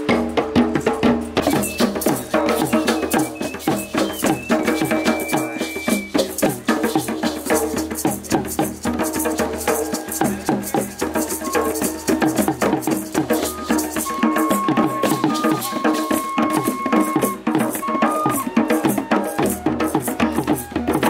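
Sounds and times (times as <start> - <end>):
hand drums playing fast rhythm: 0.0 - 21.0.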